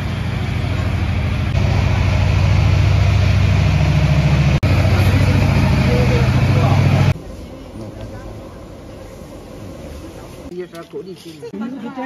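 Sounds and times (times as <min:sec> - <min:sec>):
engine idling: 0:00.0 - 0:07.2.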